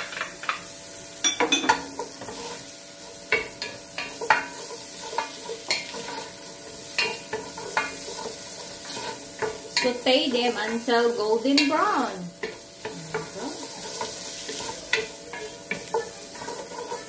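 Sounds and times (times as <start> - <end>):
oil sizzling: 0.0 - 17.0
wooden spoon scraping pot: 2.0 - 2.7, 4.1 - 10.0, 12.4 - 17.0.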